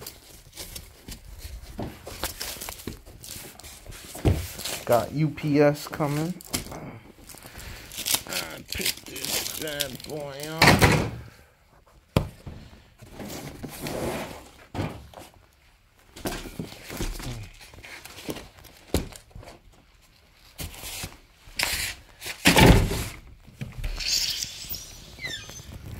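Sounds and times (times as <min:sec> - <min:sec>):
cardboard box scraping and rubbing: 0:13.1 - 0:14.7.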